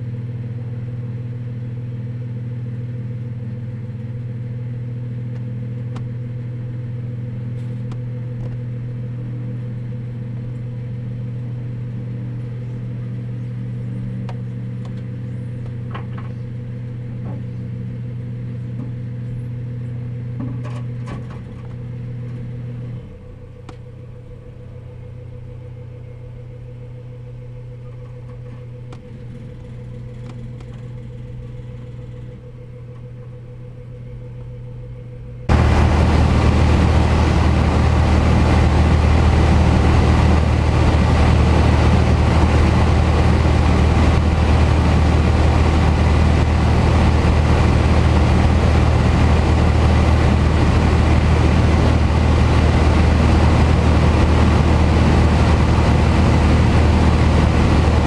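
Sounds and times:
low motor hum: 0.0s - 58.0s.

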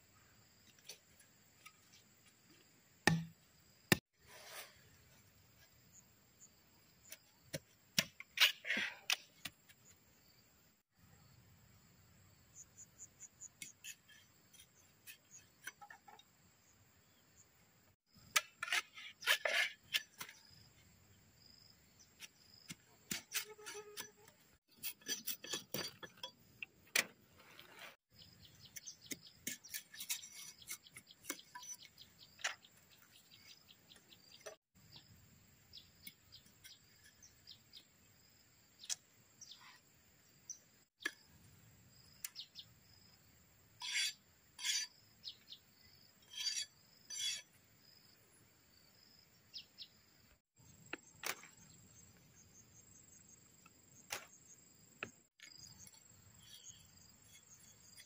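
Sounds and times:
machete splitting bamboo: 3.1s - 3.3s
blade scraping bamboo: 8.2s - 9.3s, 18.3s - 20.6s, 23.1s - 26.4s, 28.6s - 32.6s, 43.8s - 45.0s, 46.2s - 47.6s, 55.4s - 58.0s
insects chirring: 43.8s - 58.0s.

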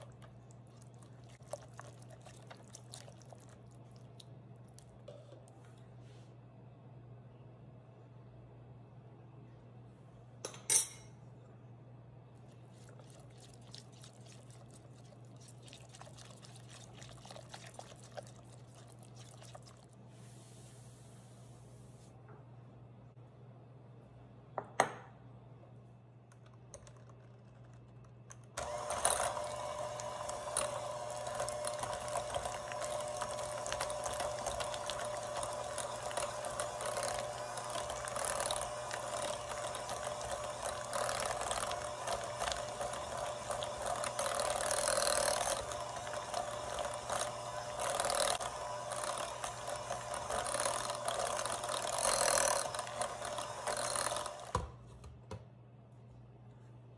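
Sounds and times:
electric hand mixer running: 28.6s - 54.8s.

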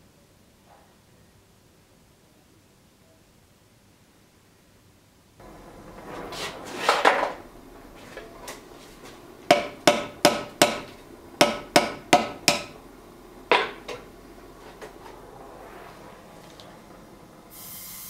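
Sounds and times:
hammer striking hot metal: 9.4s - 12.8s.

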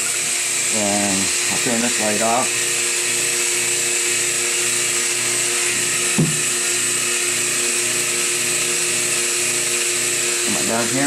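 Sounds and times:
air pump humming: 0.0s - 11.0s
brief knock: 6.2s - 6.4s.

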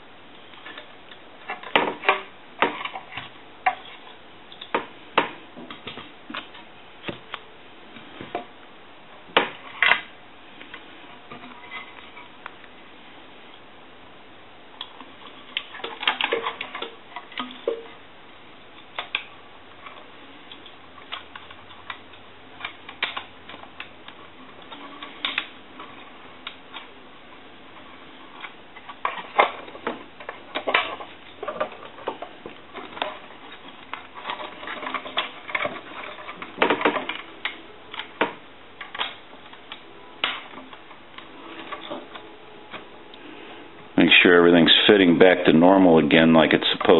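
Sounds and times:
plastic and metal parts clicking: 14.8s - 17.8s, 18.8s - 26.9s, 28.3s - 42.8s.

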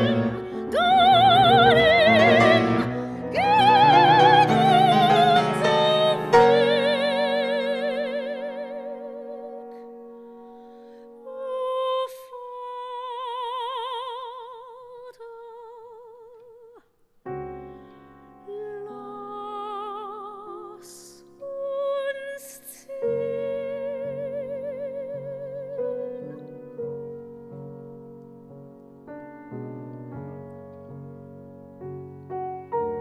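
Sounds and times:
soprano singing with vibrato: 0.0s - 10.5s, 11.1s - 16.9s, 18.4s - 26.6s
grand piano accompaniment: 0.0s - 13.8s, 17.2s - 33.0s.

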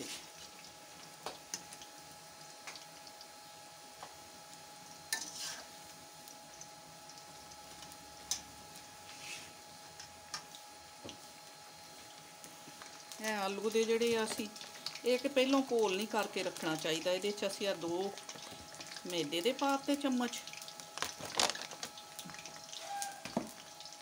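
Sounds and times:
food sizzling in hot oil: 0.0s - 24.0s.

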